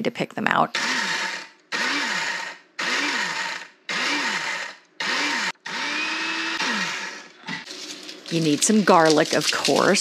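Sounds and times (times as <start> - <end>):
electric grinder motor bursts: 0.7 - 7.4.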